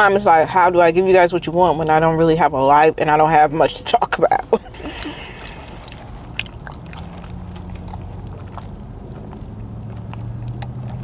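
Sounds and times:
person chewing: 4.7 - 9.4
wet mouth clicks: 4.9 - 8.4.

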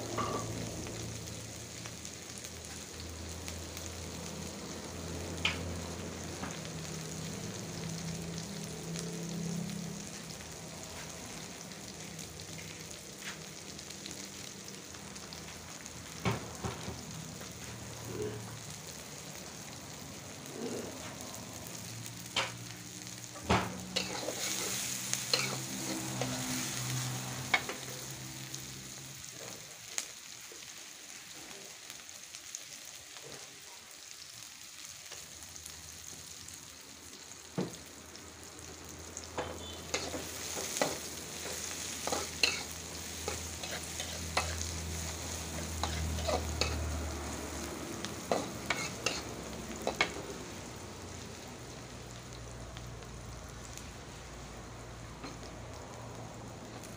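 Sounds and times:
onions sizzling in oil: 0.0 - 56.9.

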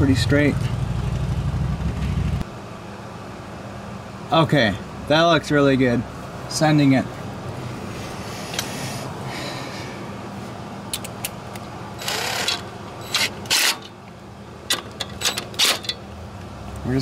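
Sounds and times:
steady low hum: 0.0 - 17.0
cordless driver bursts: 12.0 - 13.8.

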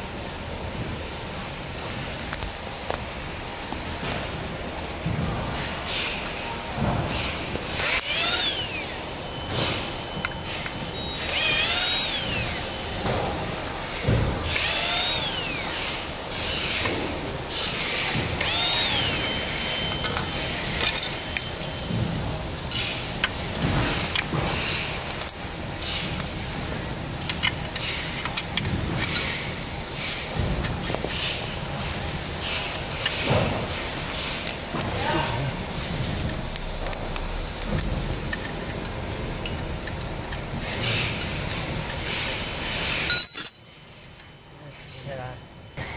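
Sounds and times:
power drill spinning: 7.7 - 9.1, 11.2 - 12.9, 14.4 - 16.8, 17.5 - 21.4
tools clattering on metal: 43.0 - 43.8.

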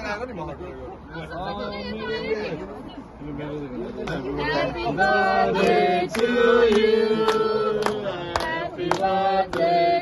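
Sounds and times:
group of people singing: 4.2 - 10.0
hand claps in time: 5.6 - 9.7.

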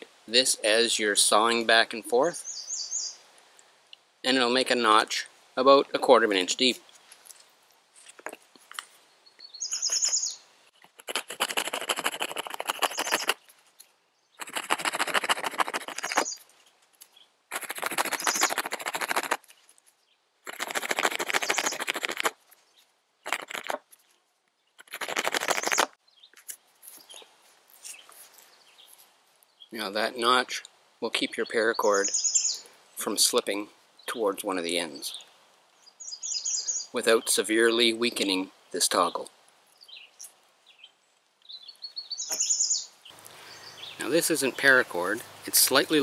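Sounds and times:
bird chirp: 2.3 - 3.2, 9.0 - 10.9, 12.7 - 14.6, 15.6 - 17.4, 18.1 - 18.7, 21.4 - 21.9, 31.2 - 32.7, 35.0 - 37.4, 39.0 - 44.8
knife rasping across stick: 10.8 - 13.4, 14.4 - 16.4, 17.5 - 19.5, 20.4 - 22.4, 23.3 - 23.8, 24.8 - 25.9.

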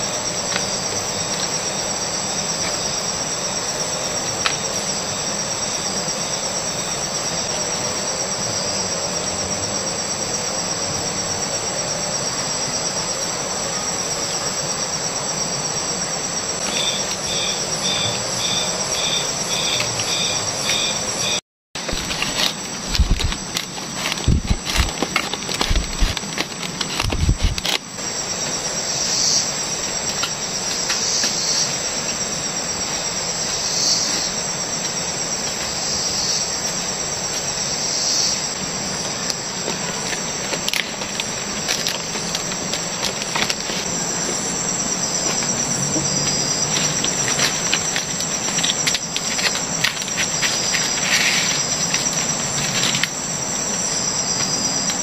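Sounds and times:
leaves rustling and clicking: 0.0 - 6.0, 16.6 - 21.1, 21.8 - 37.8, 38.4 - 55.0
crickets and cicadas droning: 0.0 - 55.0.

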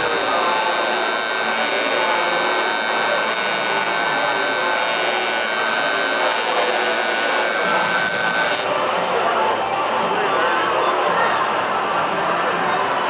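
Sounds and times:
tattoo machine buzzing: 0.0 - 8.7.

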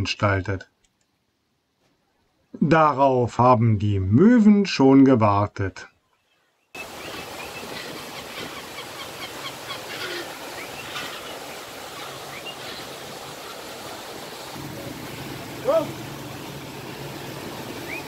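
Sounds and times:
gulls calling: 6.1 - 18.0
boat rushing on water: 6.8 - 18.0.

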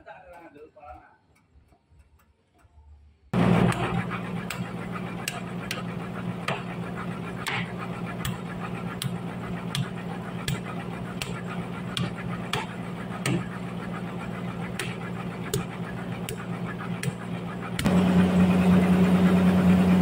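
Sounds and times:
sawmill machinery humming: 3.4 - 20.0
hammer striking wooden post: 12.0 - 13.5.

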